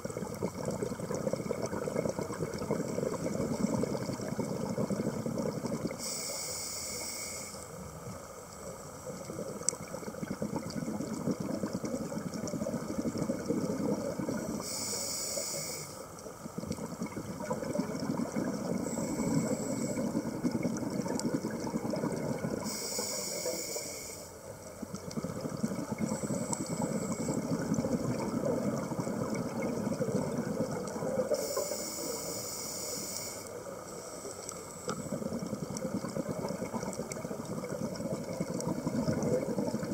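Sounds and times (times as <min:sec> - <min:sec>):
rumble of exhaled bubbles: 0:00.0 - 0:06.0, 0:09.0 - 0:14.6, 0:16.2 - 0:22.8, 0:24.4 - 0:31.5, 0:33.6 - 0:39.9
scuba regulator hiss: 0:06.0 - 0:07.7, 0:14.6 - 0:16.1, 0:18.8 - 0:20.0, 0:22.6 - 0:24.3, 0:31.3 - 0:35.0.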